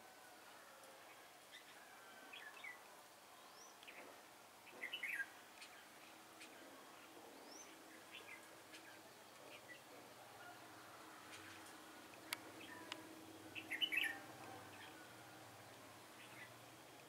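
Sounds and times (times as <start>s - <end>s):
birds chirping: 4.7s - 16.6s.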